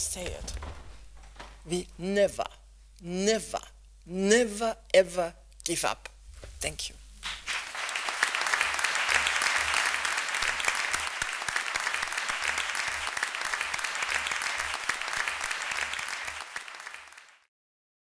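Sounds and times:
audience applauding: 7.2 - 17.5.

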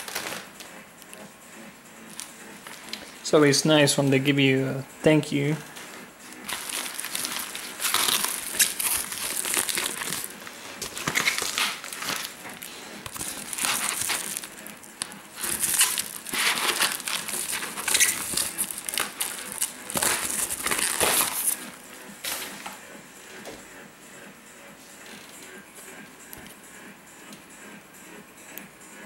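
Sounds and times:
bubble wrap crinkling: 0.0 - 0.7, 5.7 - 22.6.

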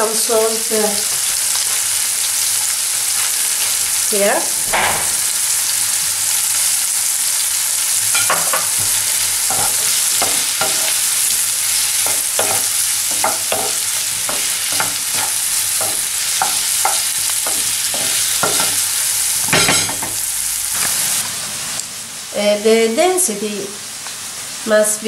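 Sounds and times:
courgette sizzling in oil: 0.0 - 25.0
wooden spoon scraping pan: 8.3 - 18.9.

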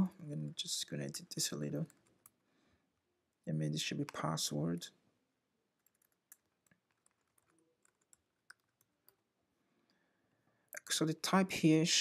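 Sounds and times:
computer keyboard keystrokes: 5.8 - 9.2.

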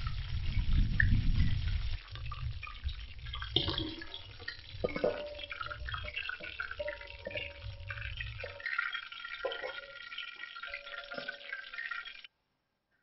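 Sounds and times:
food sizzling in hot oil: 0.0 - 12.3
metal spoon knocking a pot: 3.6 - 11.7.

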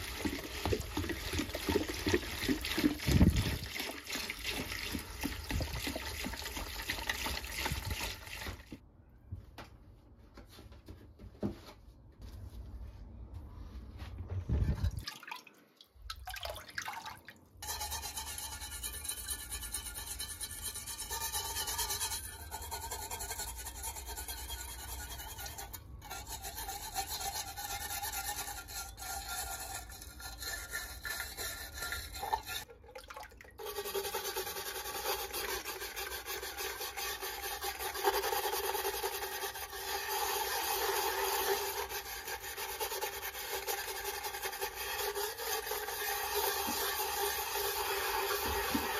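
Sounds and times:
stiff brush scrubbing metal: 0.0 - 8.6, 17.6 - 32.7, 33.6 - 48.9.

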